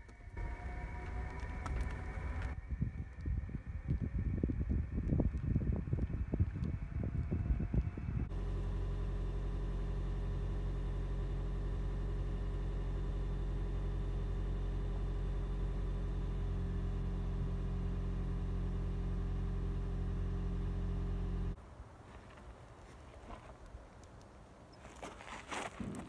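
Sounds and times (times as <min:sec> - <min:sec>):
engine idling: 0:00.0 - 0:02.6, 0:07.0 - 0:21.6.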